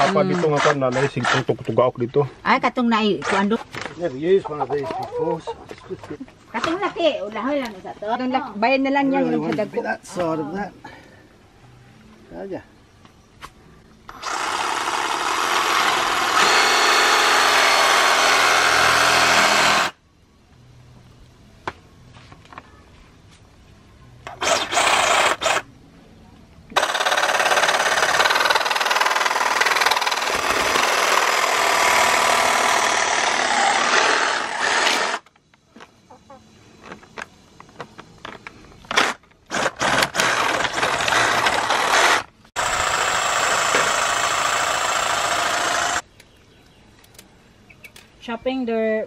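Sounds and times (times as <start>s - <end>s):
reciprocating saw cutting plastic: 0.0s - 1.6s, 14.1s - 20.0s, 24.3s - 25.7s, 26.8s - 35.3s, 38.9s - 46.0s.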